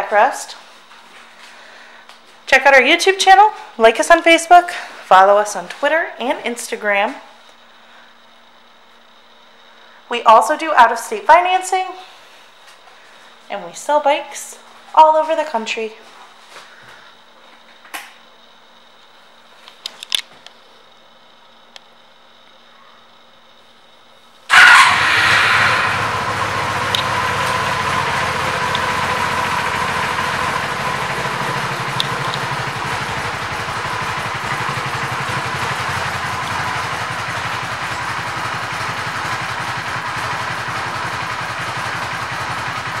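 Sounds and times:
motorcycle engine idling: 0:24.5 - 0:43.0.

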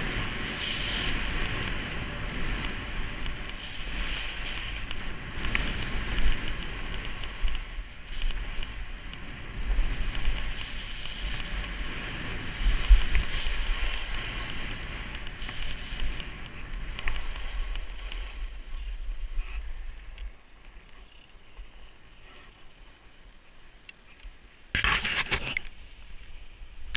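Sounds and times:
wind rumble on microphone: 0:00.0 - 0:20.8
skis scraping over snow: 0:00.0 - 0:23.8.

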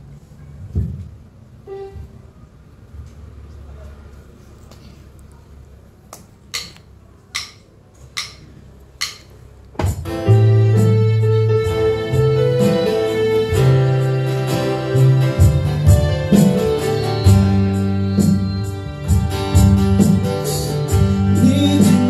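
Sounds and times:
electronic keyboard song: 0:10.1 - 0:22.0.

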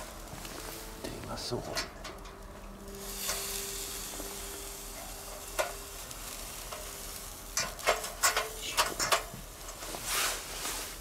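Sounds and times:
steak sizzling on a grill: 0:00.0 - 0:11.0.

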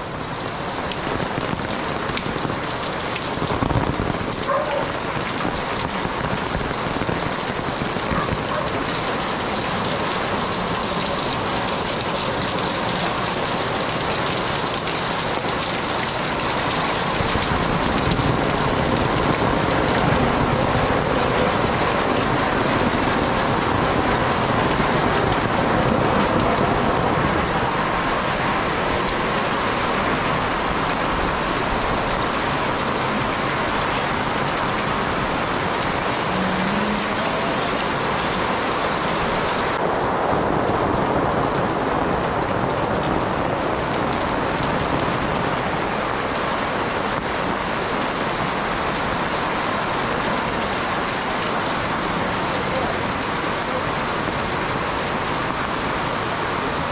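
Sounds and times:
rain on pavement: 0:00.0 - 0:56.9
rain on tarps and awnings: 0:00.0 - 0:56.9.

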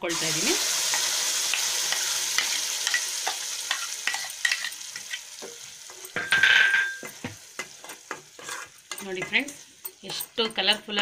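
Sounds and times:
chutney sizzling in hot oil: 0:00.0 - 0:11.0
metal spoon scraping a pan: 0:00.8 - 0:11.0.

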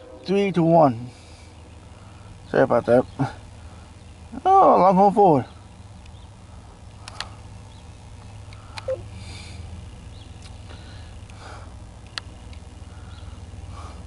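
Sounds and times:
sharp clicks: 0:07.0 - 0:07.3, 0:12.0 - 0:12.6.

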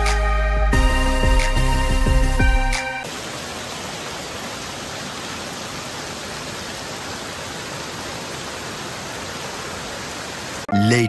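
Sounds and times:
heavy rain on a street: 0:03.0 - 0:10.7.

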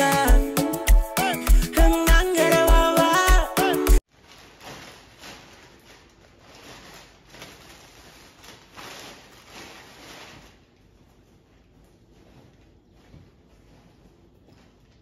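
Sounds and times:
plastic bag crinkling: 0:04.0 - 0:13.8.

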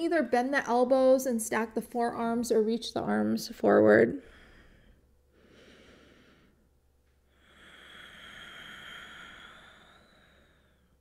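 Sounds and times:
person breathing faintly: 0:04.2 - 0:11.0.

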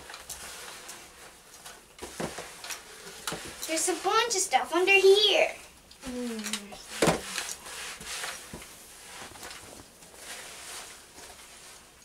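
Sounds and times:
short voice sound: 0:06.0 - 0:06.8.

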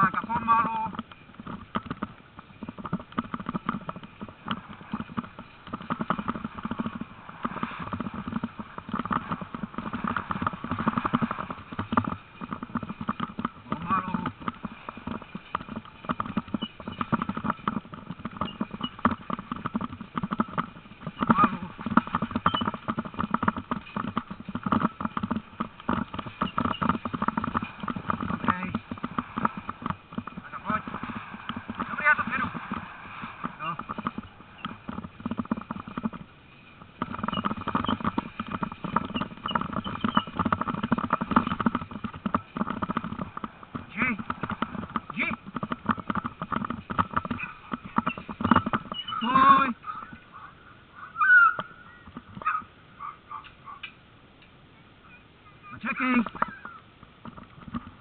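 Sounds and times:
dog team harness knocks and rattles: 0:00.0 - 0:50.2, 0:56.0 - 0:58.0
faint high squeaks: 0:15.0 - 0:42.0, 0:47.0 - 0:50.2.

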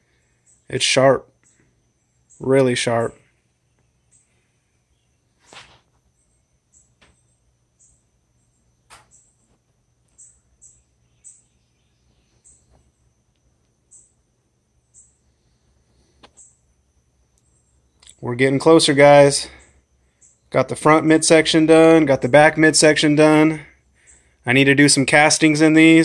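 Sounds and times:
faint high-pitched chirps: 0:00.0 - 0:20.6, 0:23.6 - 0:24.5.

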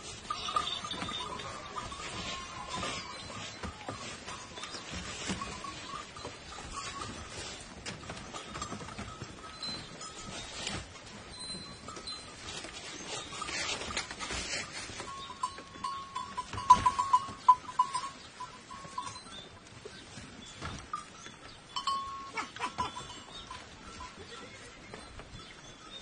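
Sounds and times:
goats moving through doorway: 0:00.0 - 0:26.0
small metal bell clinking: 0:00.2 - 0:07.5, 0:20.9 - 0:26.0.

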